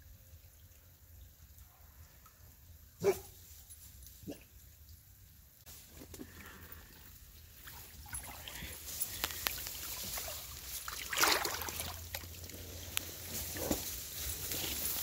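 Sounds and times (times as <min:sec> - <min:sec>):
water sloshing and splashing: 0:05.8 - 0:15.0.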